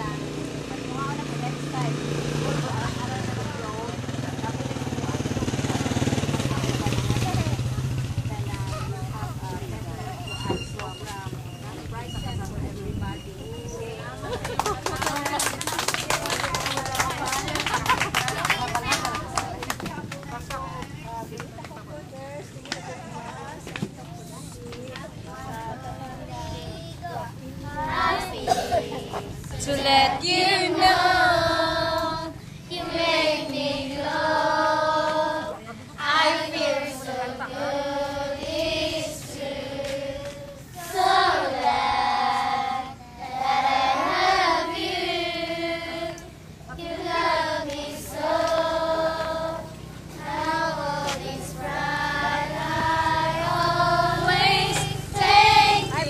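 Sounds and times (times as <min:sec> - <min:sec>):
girls singing together: 0:25.5 - 0:56.0.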